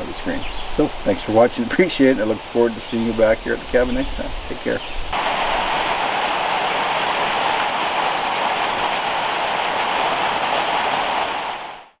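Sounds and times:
steady rain falling: 0:04.4 - 0:12.0.

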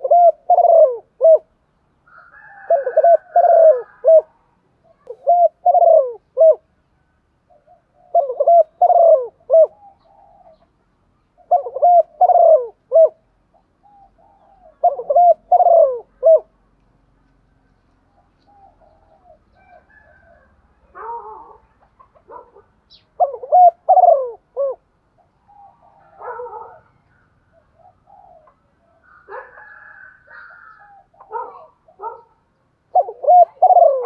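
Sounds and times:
dove cooing: 0:00.0 - 0:06.7, 0:07.4 - 0:16.6, 0:18.1 - 0:34.0.

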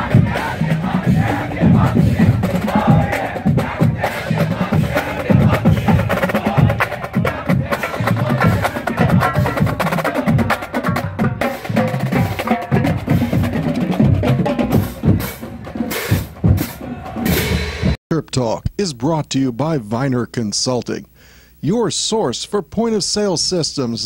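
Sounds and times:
snare drums: 0:00.0 - 0:18.0
bass drums: 0:00.0 - 0:18.8
tenor drums: 0:00.0 - 0:19.8.

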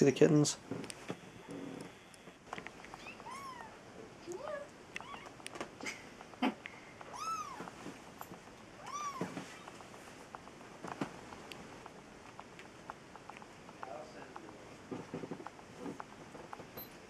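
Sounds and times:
kittens mewing: 0:02.9 - 0:07.8, 0:08.8 - 0:09.9
small clicks and taps: 0:04.3 - 0:17.0.

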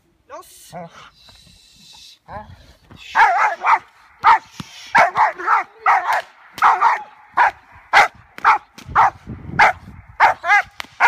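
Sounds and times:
dog barking excitedly: 0:03.2 - 0:10.8.

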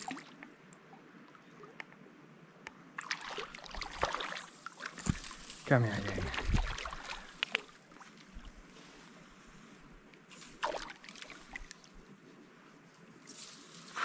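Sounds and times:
fish splashing in shallow water: 0:03.0 - 0:08.7, 0:10.4 - 0:12.0.

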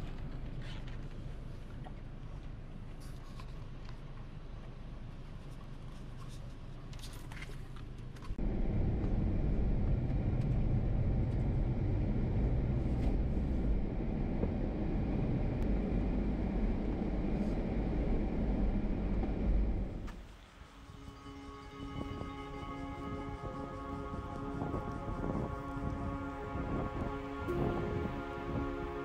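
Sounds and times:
faint clicks and rustles: 0:00.0 - 0:08.4
van engine and road noise: 0:00.0 - 0:29.0.

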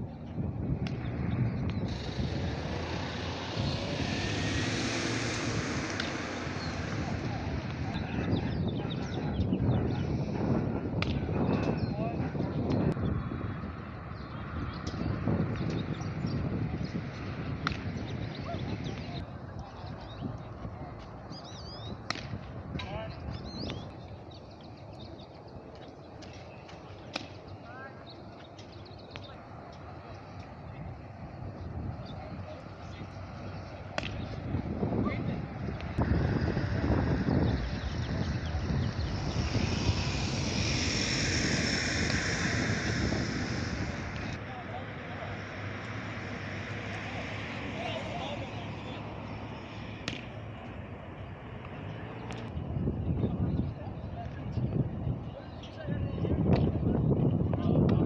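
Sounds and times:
propeller airplane drone: 0:00.0 - 0:11.3, 0:28.5 - 0:52.6.

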